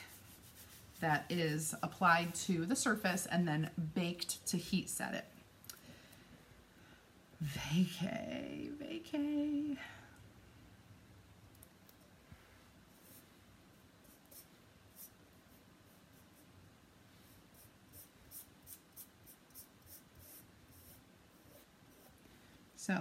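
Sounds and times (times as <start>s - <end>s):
scratchy rubbing strokes: 0.0s - 2.4s.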